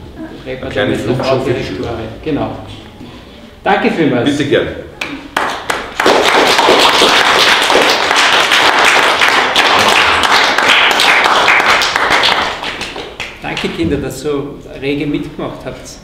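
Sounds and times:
children applauding: 0:05.0 - 0:13.7.

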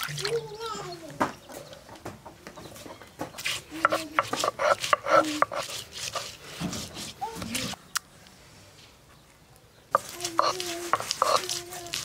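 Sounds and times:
knife chopping on wooden board: 0:03.5 - 0:07.1.

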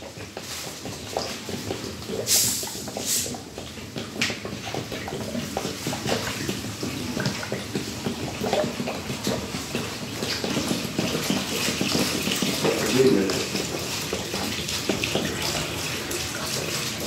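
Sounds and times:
water splashing into urinal: 0:00.0 - 0:17.0.

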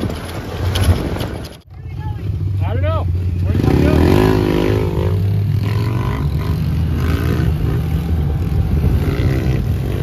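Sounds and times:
dirt bike engines: 0:00.0 - 0:10.0.

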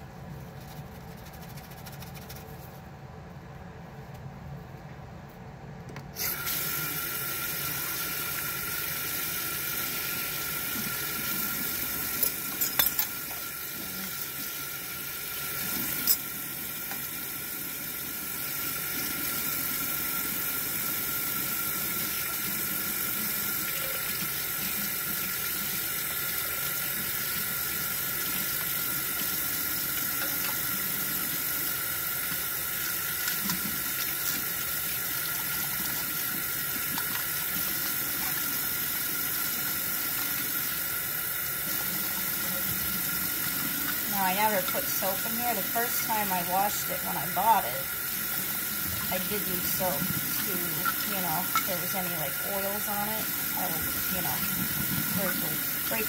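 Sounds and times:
plastic bottle being rinsed: 0:41.4 - 0:56.0.

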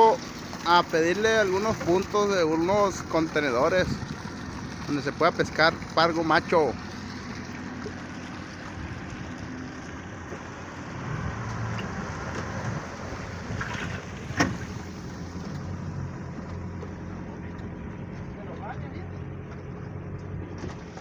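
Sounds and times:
boat engine idling: 0:00.0 - 0:21.0
wind and water noise: 0:00.0 - 0:21.0.

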